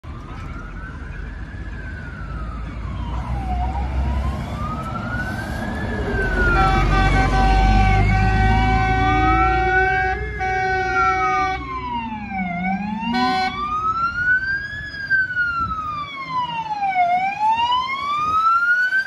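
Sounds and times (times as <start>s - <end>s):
low-pitched rumbler siren: 0.0s - 19.0s
vehicle engines passing: 0.0s - 19.0s
electronic siren wailing: 0.4s - 19.0s
air horns blaring: 6.4s - 11.7s, 12.7s - 13.7s.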